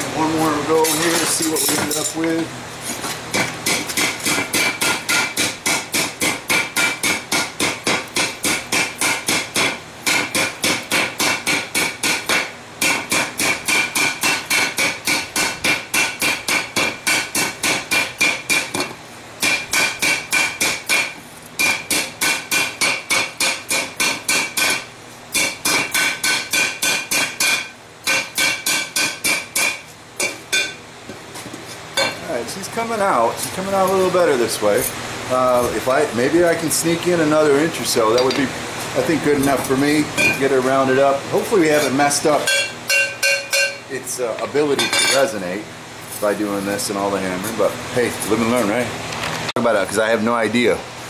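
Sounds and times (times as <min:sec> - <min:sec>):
hammer ringing on hot metal: 0:03.6 - 0:30.8, 0:32.0 - 0:32.2, 0:38.1 - 0:38.5, 0:40.2 - 0:40.5, 0:41.8 - 0:43.9.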